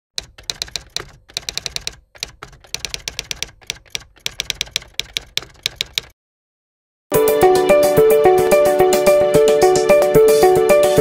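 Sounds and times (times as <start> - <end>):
keyboard typing clicks: 0.2 - 6.2.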